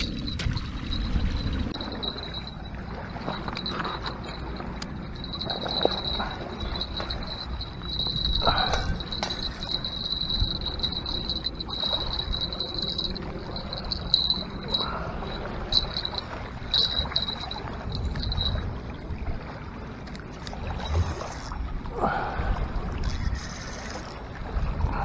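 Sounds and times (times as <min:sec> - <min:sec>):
steady high-pitched whine: 0:00.0 - 0:19.0
wind buffeting microphone: 0:00.0 - 0:23.6.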